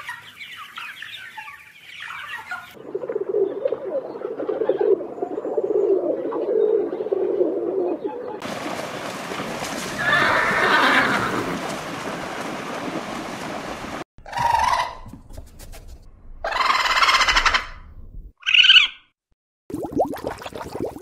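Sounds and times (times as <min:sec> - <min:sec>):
horse neighing: 0:10.0 - 0:11.6
short pitched calls: 0:18.4 - 0:19.1.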